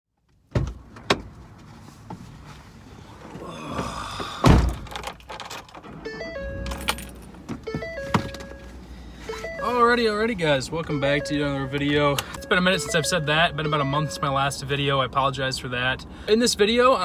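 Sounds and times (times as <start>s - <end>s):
thumps and knocks in vehicle cab: 0.5s - 2.3s, 7.5s - 8.6s.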